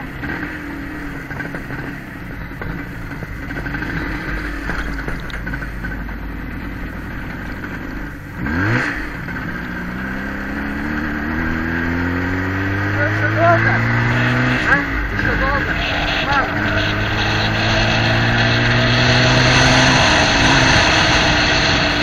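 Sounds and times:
vehicle engine revving: 0:00.0 - 0:22.0
wind noise: 0:13.9 - 0:22.0.

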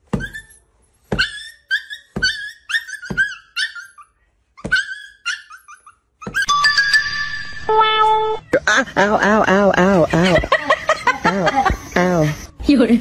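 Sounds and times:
puppy yelping: 0:00.1 - 0:06.6.

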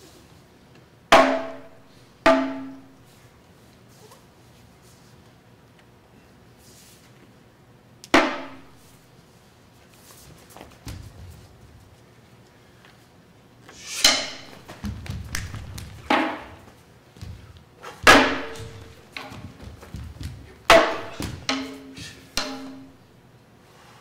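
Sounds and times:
fan drum strokes: 0:13.7 - 0:23.1.

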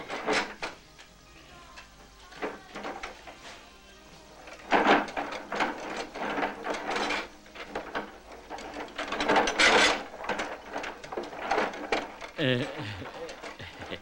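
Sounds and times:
metal mop bucket rattling: 0:04.5 - 0:14.0.

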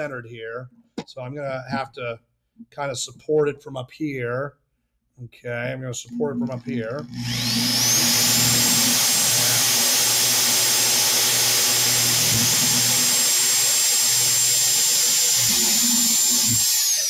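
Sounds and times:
electric drill whining: 0:06.4 - 0:17.0.

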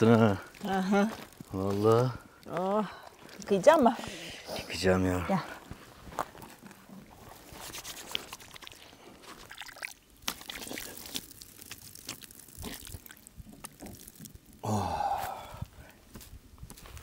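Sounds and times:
water pouring and trickling: 0:07.4 - 0:14.8.

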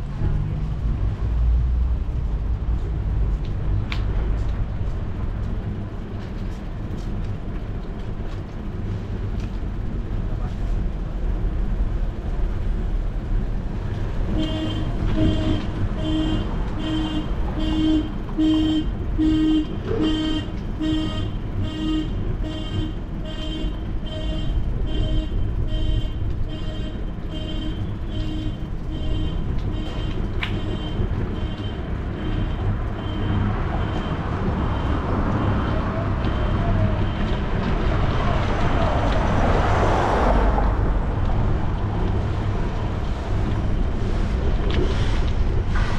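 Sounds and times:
street traffic: 0:00.0 - 0:45.9
wind rumble: 0:00.0 - 0:45.9
car passing: 0:32.7 - 0:45.9.

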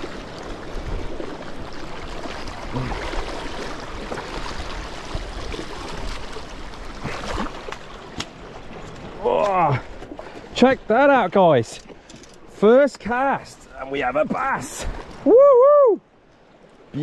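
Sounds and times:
sea water washing over rocks: 0:00.0 - 0:10.6.

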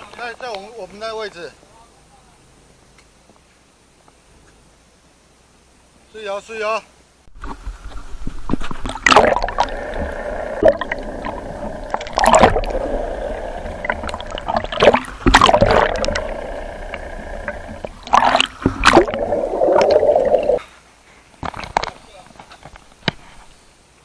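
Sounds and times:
steady hum: 0:07.3 - 0:20.6
water gurgling and sloshing: 0:07.3 - 0:20.6
loud water splashing: 0:08.8 - 0:20.6.

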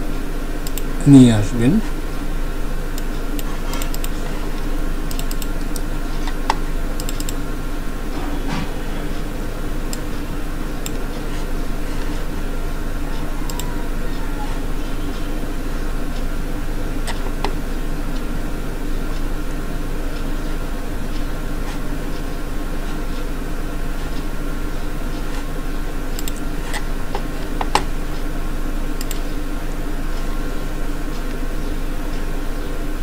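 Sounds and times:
low mains hum: 0:00.0 - 0:33.0
microphone room noise hiss: 0:00.0 - 0:33.0
computer mouse clicks: 0:00.6 - 0:00.9, 0:03.0 - 0:07.4, 0:13.5 - 0:13.8, 0:26.2 - 0:27.9, 0:29.0 - 0:29.4.

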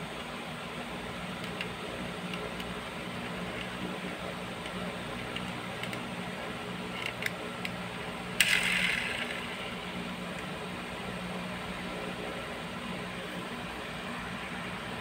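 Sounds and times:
steady low hum: 0:00.0 - 0:15.0
toy car motor clicks: 0:08.4 - 0:09.4
toy car wheels whirring: 0:08.4 - 0:09.7.

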